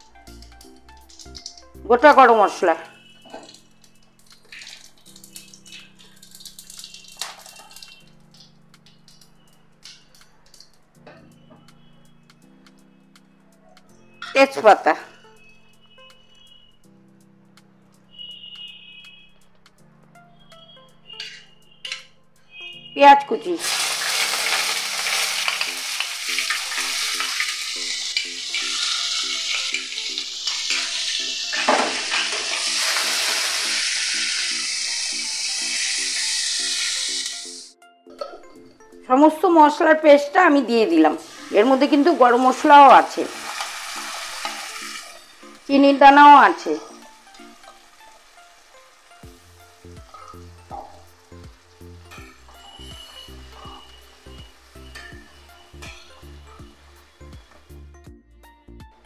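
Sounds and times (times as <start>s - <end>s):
spices sizzling in oil: 0.0s - 10.8s, 21.0s - 37.7s, 40.4s - 58.0s
soft background music: 0.0s - 59.0s
spatula scraping a pan: 24.3s - 34.1s, 52.2s - 56.3s.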